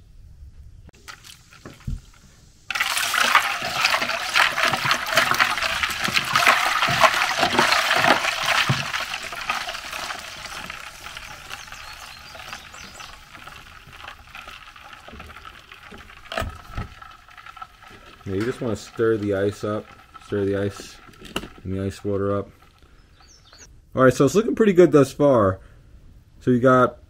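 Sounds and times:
water sloshing and splashing: 1.0s - 23.4s
ice knocking: 2.7s - 22.8s.

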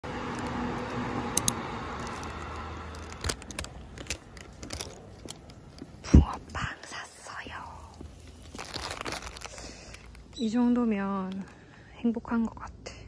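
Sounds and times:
faint steady hum: 0.0s - 13.0s
paper bag crinkling: 2.0s - 5.8s, 8.0s - 11.6s.

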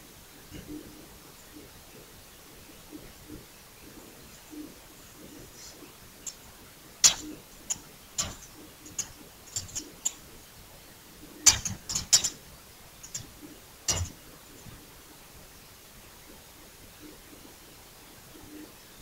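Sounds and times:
keyboard keys clicking: 7.0s - 10.2s, 11.5s - 12.4s, 13.0s - 14.2s.

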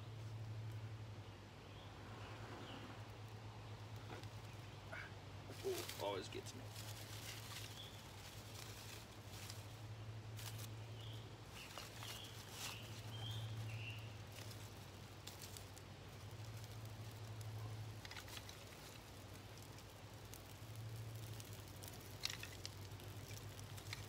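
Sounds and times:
campfire crackling: 0.0s - 24.0s
steady low hum: 0.0s - 24.0s
bird chirps: 10.8s - 14.2s
sticks snapping and knocking: 11.5s - 24.0s.

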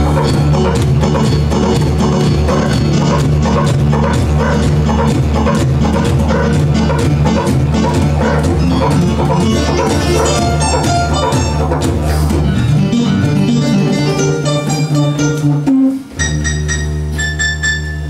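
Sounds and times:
didgeridoo drone: 0.0s - 14.7s
keyboard notes: 0.0s - 18.0s.

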